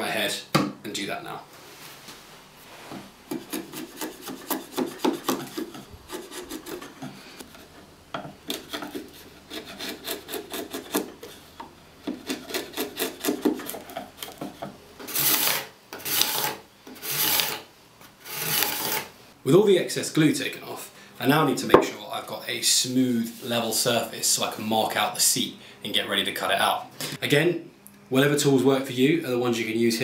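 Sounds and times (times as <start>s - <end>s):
chisel scraping wood: 3.3s - 19.1s.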